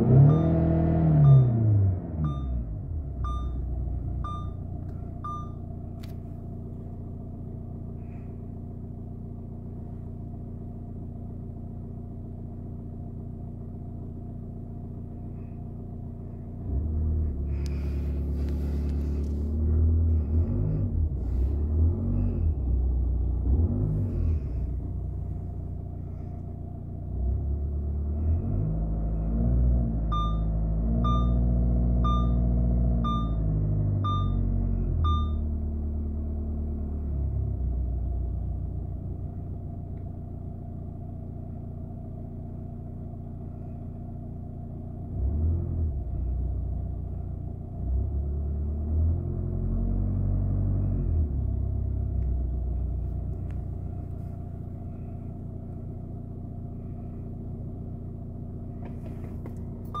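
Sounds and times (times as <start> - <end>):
diesel engine running: 0.0 - 60.0
warning chime beeping: 0.2 - 1.6, 3.3 - 3.6, 4.2 - 4.6, 5.2 - 5.6, 30.1 - 32.4, 33.0 - 33.5, 34.1 - 34.5, 35.1 - 35.4.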